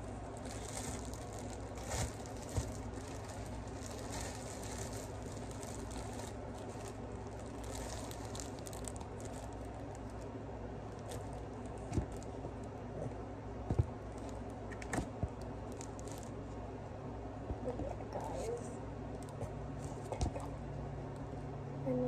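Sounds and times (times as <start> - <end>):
plastic bag crinkling: 0.0 - 12.8, 14.0 - 16.5
steady low hum: 0.0 - 22.0.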